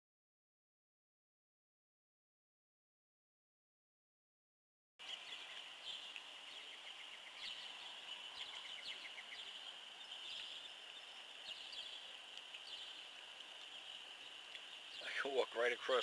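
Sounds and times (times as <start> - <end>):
birds chirping trills: 5.0 - 16.0.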